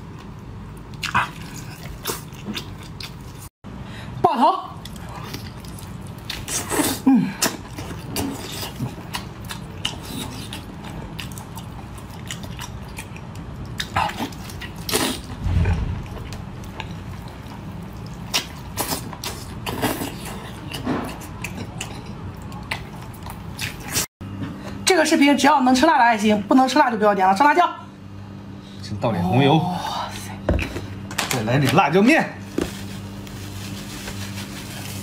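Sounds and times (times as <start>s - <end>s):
steady low hum: 0.0s - 31.3s
wet chewing and slurping: 0.2s - 3.5s, 4.8s - 24.1s.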